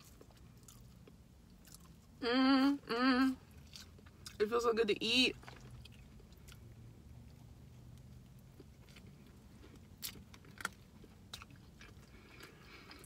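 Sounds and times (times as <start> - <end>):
low steady hum: 0.0 - 13.0
quiet chewing: 5.4 - 13.0.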